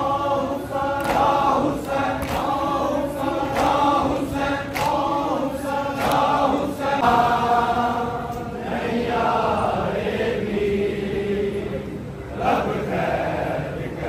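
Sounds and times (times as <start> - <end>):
men chanting a lament: 0.0 - 14.0
chest-beating slaps: 1.0 - 2.6, 4.7 - 5.1.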